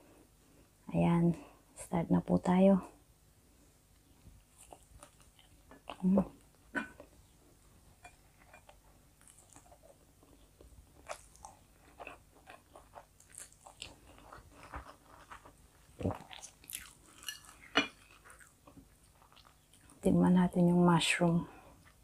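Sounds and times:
chewing with wet mouth clicks: 0:04.5 - 0:07.1, 0:08.4 - 0:20.0.

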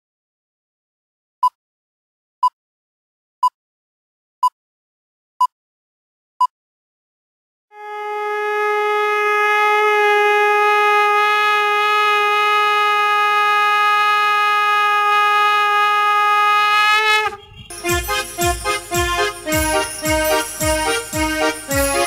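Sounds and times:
conch shell blown: 0:07.7 - 0:22.0
music with bells and percussion: 0:17.7 - 0:22.0.

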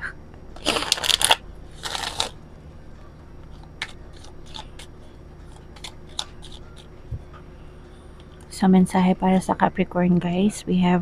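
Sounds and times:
cards shuffling: 0:00.6 - 0:02.4, 0:03.5 - 0:04.9, 0:05.5 - 0:06.9.

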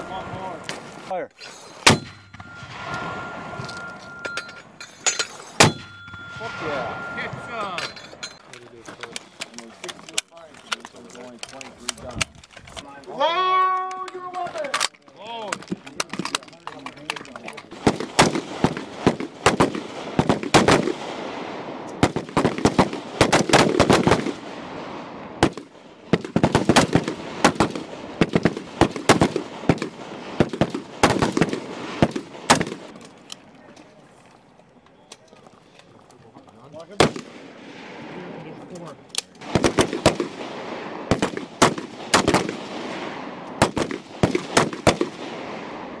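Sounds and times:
rifle shots: 0:05.6 - 0:07.4, 0:17.7 - 0:33.0, 0:36.9 - 0:38.2, 0:39.3 - 0:46.0.

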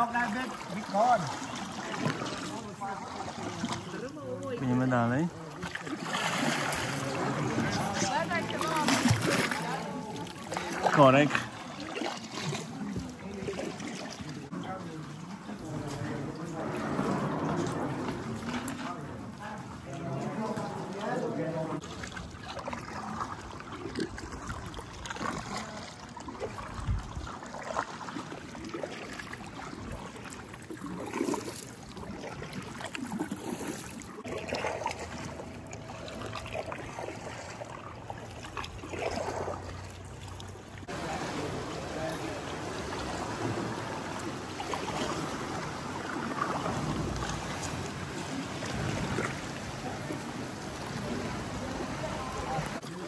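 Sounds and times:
water splashing around kayak: 0:00.0 - 0:53.0
faint voices: 0:49.2 - 0:53.0.

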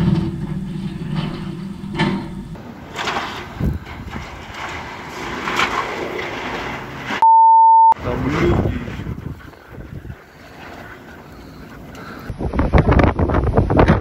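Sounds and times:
blizzard wind gusting: 0:00.0 - 0:07.2, 0:08.0 - 0:14.0
one-tone bleep: 0:07.2 - 0:08.0.

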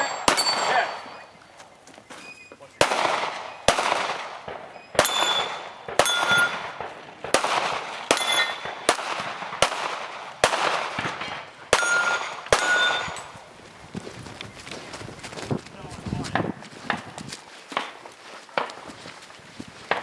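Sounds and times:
gunshots: 0:00.0 - 0:01.2, 0:02.8 - 0:13.3
steel targets ringing: 0:00.0 - 0:01.3, 0:04.7 - 0:06.8, 0:08.1 - 0:08.7, 0:11.7 - 0:13.3.

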